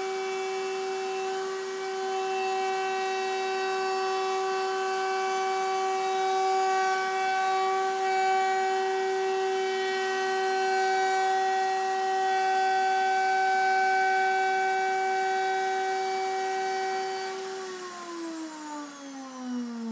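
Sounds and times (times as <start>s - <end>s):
router whining while cutting wood: 0.0s - 19.9s.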